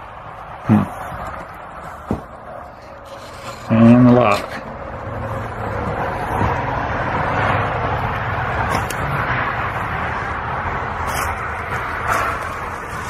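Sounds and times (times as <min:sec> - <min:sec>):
highway traffic tyre hiss: 0:04.7 - 0:13.0.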